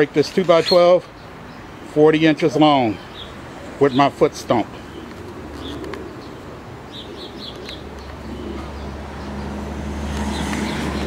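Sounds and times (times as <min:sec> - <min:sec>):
vehicle rumble passing: 0:03.2 - 0:11.0.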